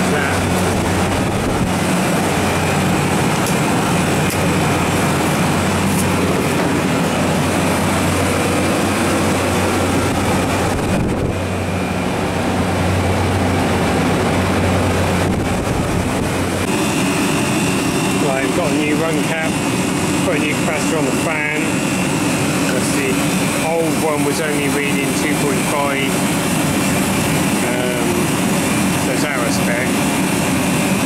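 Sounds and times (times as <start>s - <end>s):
compressor humming: 0.0s - 31.0s
condenser fan air rushing: 0.0s - 31.0s.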